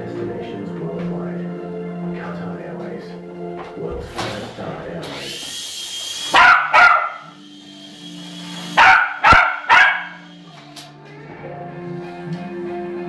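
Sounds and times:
small dog barking: 6.3s - 7.3s, 8.7s - 10.3s.

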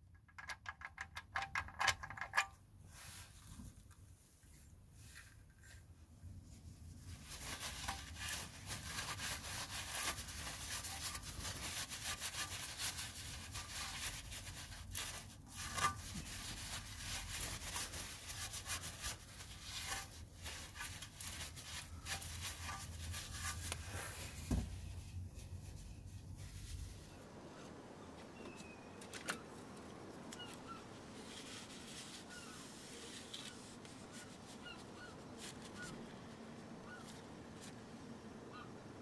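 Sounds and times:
paper towel scrubbing metal: 4.6s - 27.2s
dull thump: 24.4s - 24.8s.

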